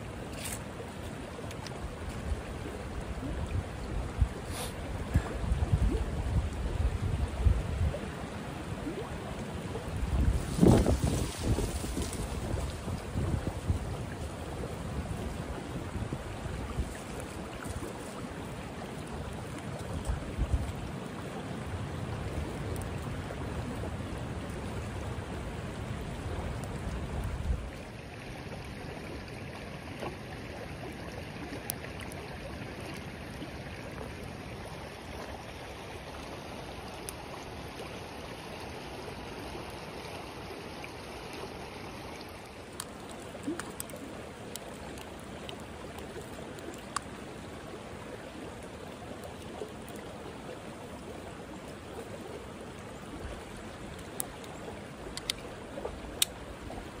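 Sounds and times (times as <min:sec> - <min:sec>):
water rushing over rocks: 0:00.0 - 0:57.0
faint ticks: 0:53.9 - 0:55.5, 0:56.2 - 0:56.4.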